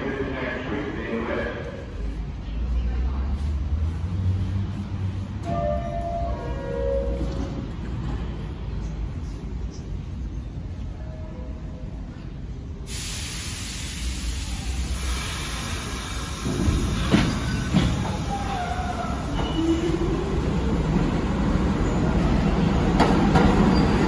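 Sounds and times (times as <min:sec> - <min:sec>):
subway train rumble: 0:00.0 - 0:24.0
wheels clanking on rails: 0:16.4 - 0:19.9
wheel squeals: 0:23.6 - 0:24.0.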